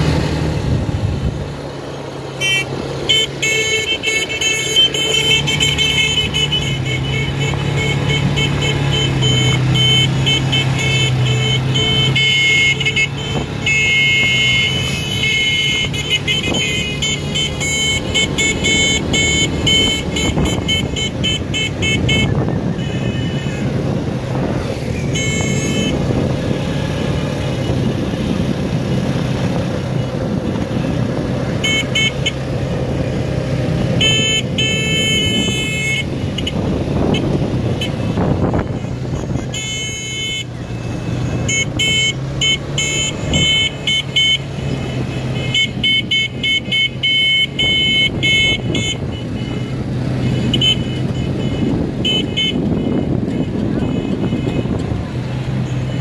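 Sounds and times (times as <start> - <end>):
quad bike engines running: 0.0 - 56.0
rapid horn beeps: 2.3 - 23.9, 24.8 - 26.2, 31.5 - 32.6, 33.9 - 54.9.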